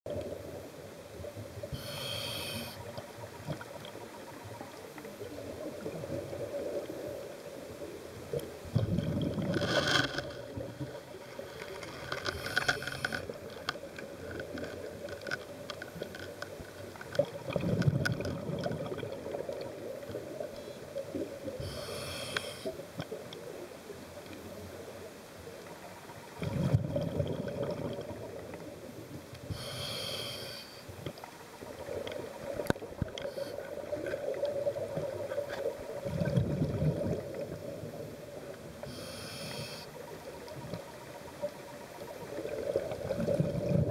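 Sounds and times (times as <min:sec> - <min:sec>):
regulator inhale hiss: 0:01.7 - 0:03.0, 0:12.3 - 0:13.4, 0:21.6 - 0:22.8, 0:29.4 - 0:31.1, 0:33.2 - 0:33.8, 0:38.8 - 0:40.0
exhaled bubbles: 0:08.7 - 0:10.9, 0:17.2 - 0:20.5, 0:26.4 - 0:28.6, 0:31.8 - 0:37.9, 0:42.3 - 0:43.9.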